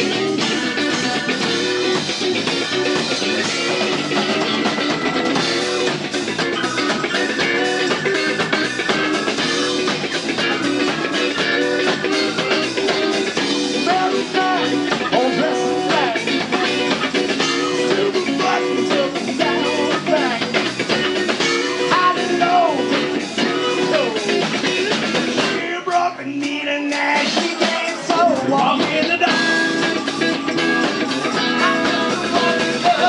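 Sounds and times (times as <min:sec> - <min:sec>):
drum kit: 0:00.0 - 0:33.0
electric bass: 0:00.0 - 0:33.0
electric guitar: 0:00.0 - 0:33.0.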